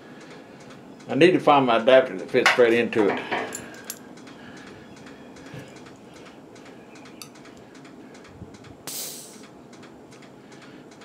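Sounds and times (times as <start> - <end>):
short hiss of air: 8.8 - 9.4.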